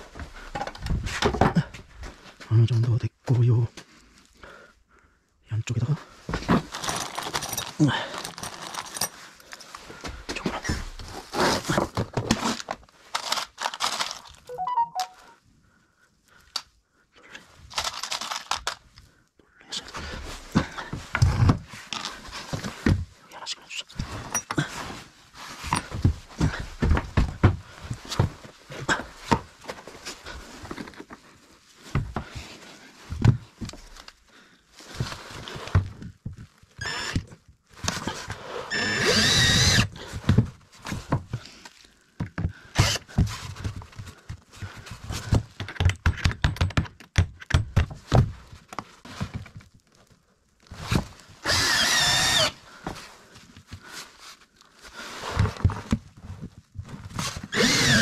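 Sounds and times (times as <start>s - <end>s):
knocks and clatter of parts: 0.2s - 1.8s, 6.3s - 14.4s, 17.6s - 18.8s, 42.2s - 48.4s
power drill whine: 38.7s - 39.9s, 42.8s - 43.0s, 51.4s - 52.6s, 57.5s - 58.0s.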